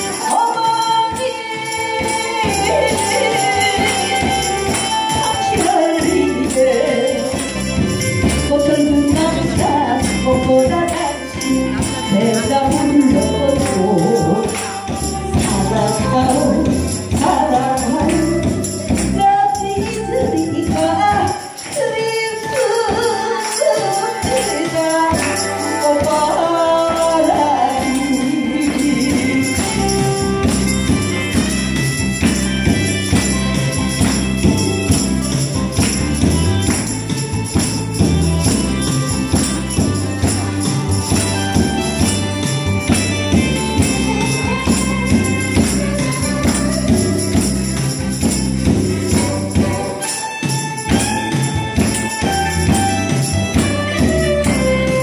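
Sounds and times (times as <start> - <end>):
woman singing: 0.0 - 31.0, 43.2 - 52.8
tambourines shaken: 0.0 - 55.0.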